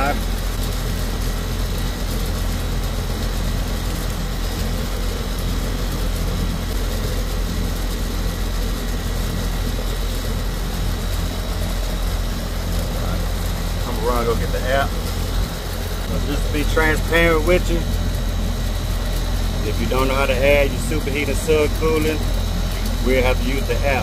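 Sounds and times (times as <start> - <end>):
air conditioner unit humming: 0.0 - 24.0.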